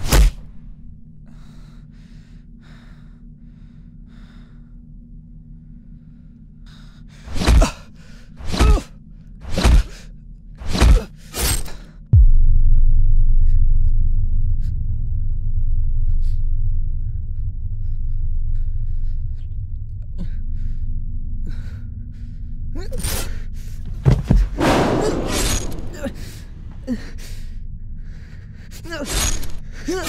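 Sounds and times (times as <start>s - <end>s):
deep low rumbling drone: 11.9s - 30.0s
sharp hits: 24.1s - 26.8s.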